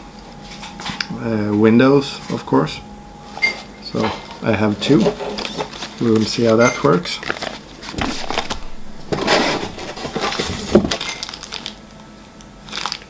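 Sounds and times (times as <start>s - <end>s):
plastic packaging crinkling: 5.4s - 11.8s, 12.7s - 13.0s.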